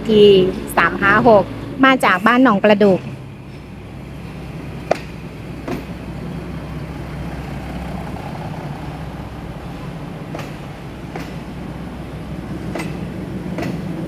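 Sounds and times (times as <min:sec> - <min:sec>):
train engine drone: 0:00.0 - 0:14.0
sharp metallic clanks: 0:03.0 - 0:06.4, 0:09.6 - 0:14.0.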